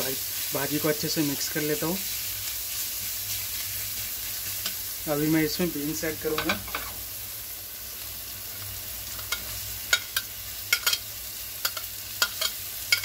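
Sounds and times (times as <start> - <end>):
vegetables sizzling in oil: 0.0 - 13.0
metal spatula clicking on pan: 9.2 - 11.0, 11.6 - 13.0.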